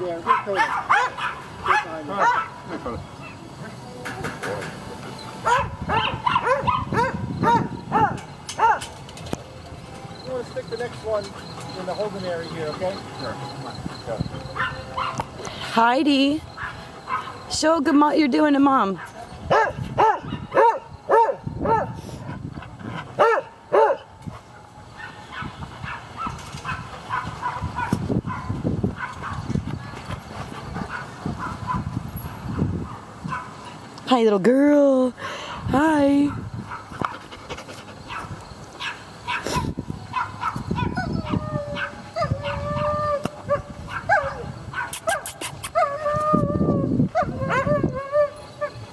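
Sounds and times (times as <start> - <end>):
dog barking: 0.2 - 2.6, 5.4 - 8.9, 14.5 - 15.3, 16.6 - 17.5, 19.0 - 22.0, 23.2 - 24.1, 25.0 - 29.5, 30.9 - 31.9, 32.8 - 33.6, 38.1 - 42.9, 43.5 - 45.3
higher-pitched barking: 0.2 - 2.6, 5.4 - 8.9, 13.7 - 15.3, 16.6 - 17.5, 19.0 - 22.0, 23.2 - 24.1, 38.0 - 42.9, 43.5 - 45.9
dog howling: 40.8 - 44.5, 45.7 - 48.8.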